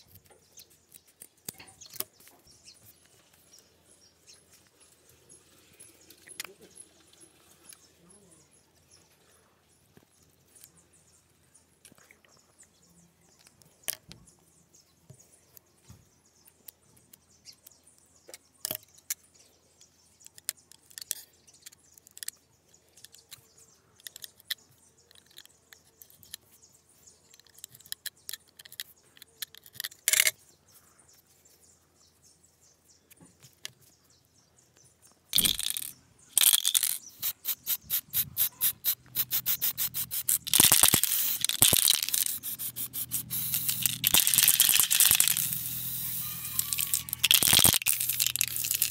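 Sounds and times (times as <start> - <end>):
spray-paint can hissing: 35.4 - 48.9.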